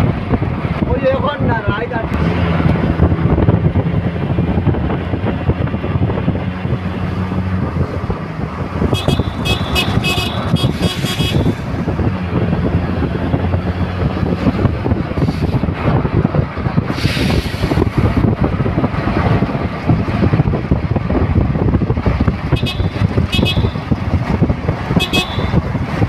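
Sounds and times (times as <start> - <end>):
vehicle engine hum: 0.0 - 26.0
wind and road noise: 0.0 - 26.0
short high-pitched horn toots: 9.0 - 11.6, 25.0 - 25.6.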